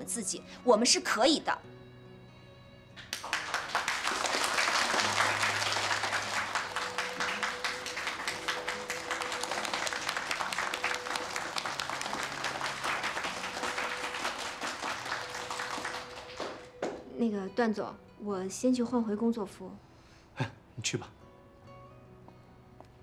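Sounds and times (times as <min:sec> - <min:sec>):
soft background music: 0:00.0 - 0:23.0
people applauding: 0:03.0 - 0:17.0.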